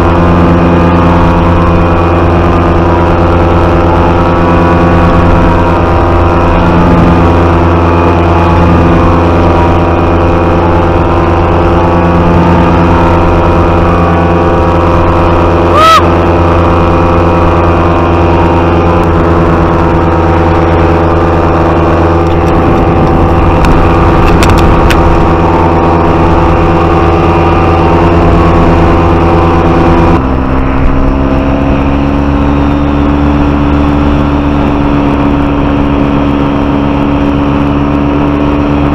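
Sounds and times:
paramotor engine and propeller: 0.0 - 38.9.

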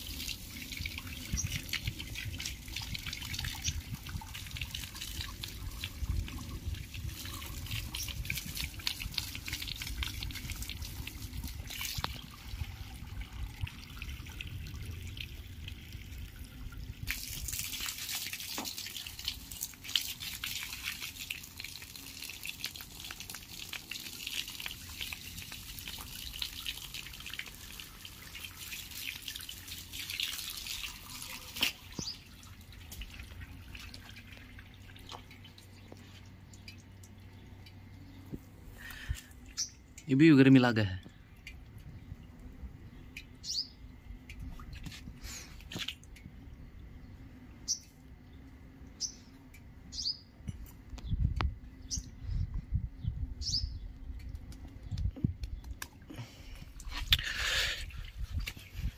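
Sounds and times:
water splashing on dog and paving: 0.0 - 37.8, 44.3 - 46.3, 53.4 - 58.9.

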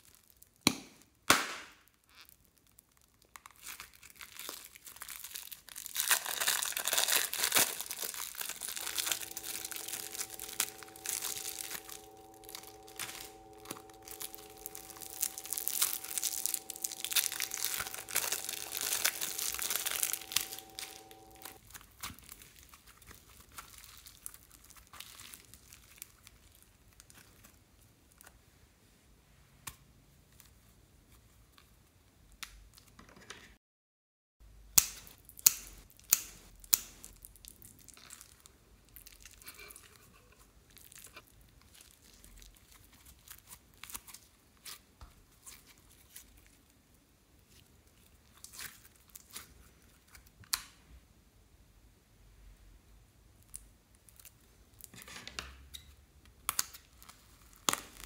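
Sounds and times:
slime crackling and squishing: 3.0 - 13.3, 14.0 - 26.0
plastic bags crinkling: 3.6 - 22.3.

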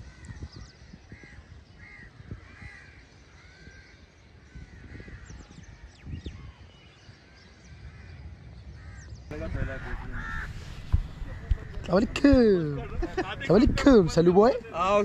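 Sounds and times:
crows cawing: 1.1 - 5.9, 7.3 - 12.1.

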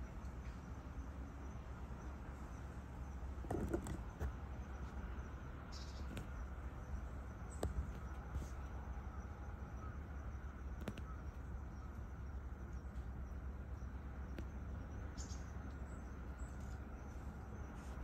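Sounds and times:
bird chirp: 4.1 - 17.9.

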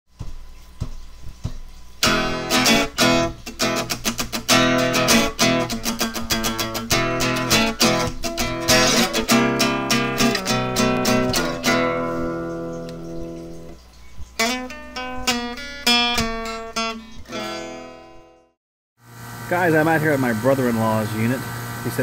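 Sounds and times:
strummed guitar music: 2.0 - 13.8, 14.4 - 18.5.

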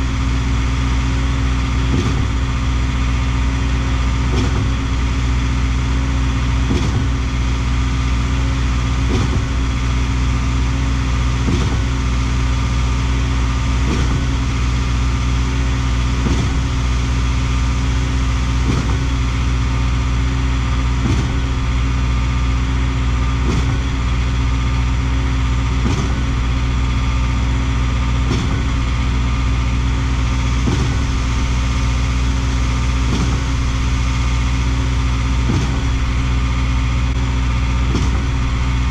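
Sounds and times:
concrete pump running: 0.0 - 38.9
pump pistons knocking: 0.0 - 38.9.

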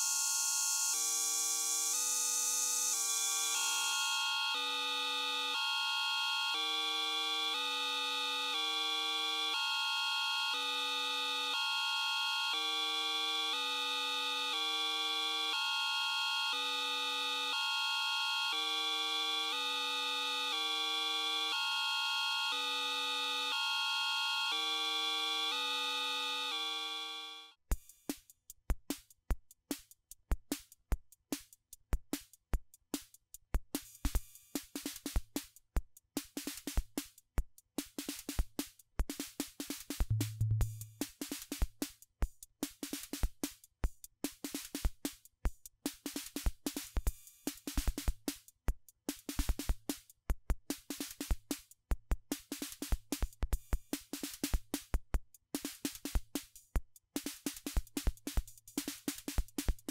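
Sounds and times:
drum machine beat: 37.8 - 41.9, 42.6 - 59.9.

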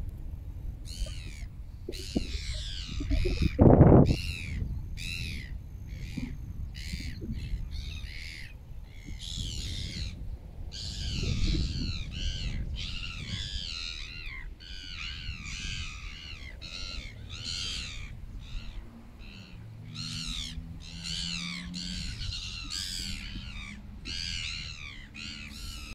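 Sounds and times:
low rumbling noise: 0.0 - 13.8
low steady hum: 0.0 - 25.9
gulls calling: 0.8 - 25.9.

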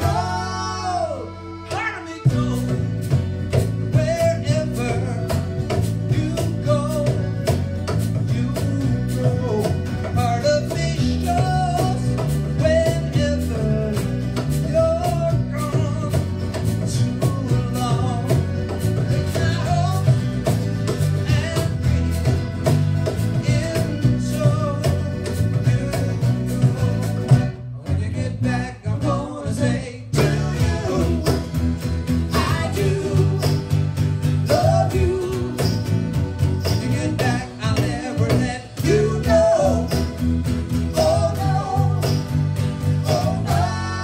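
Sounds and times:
accordion melody: 0.0 - 27.8, 29.2 - 44.0
electric bass: 0.0 - 44.0
strummed acoustic guitar: 0.0 - 44.0
hand percussion: 30.2 - 44.0.

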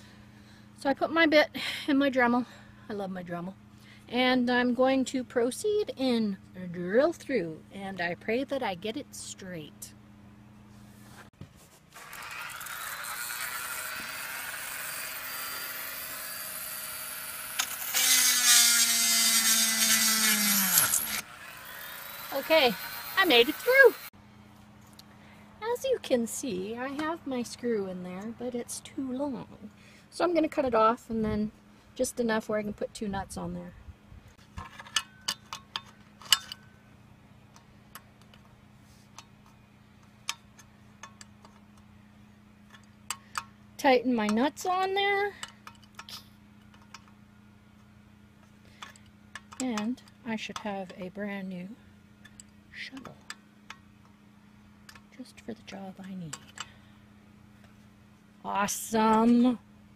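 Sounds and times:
rotary tool drilling whine: 11.9 - 24.1.

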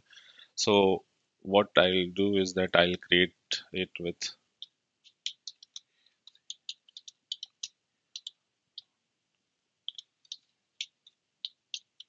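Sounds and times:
computer keyboard typing: 5.1 - 8.3.

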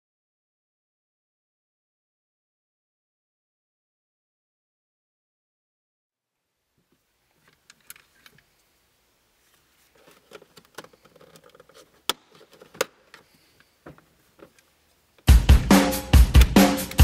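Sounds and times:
gear shifter clicks and knocks: 10.0 - 13.3.

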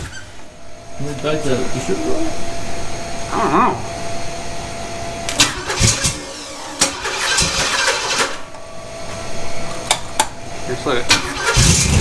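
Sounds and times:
engine cranking: 5.4 - 8.4, 11.1 - 12.0
engine popping: 11.1 - 12.0.

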